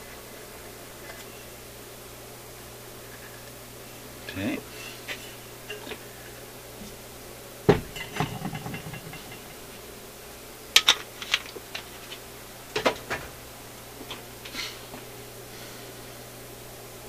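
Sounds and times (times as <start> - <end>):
metal platter knocks and clinks: 7.8 - 9.6.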